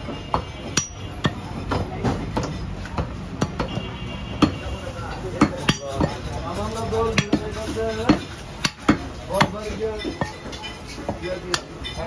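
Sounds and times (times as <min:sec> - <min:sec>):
knife chopping meat on wood: 0:00.0 - 0:04.6, 0:07.1 - 0:11.7.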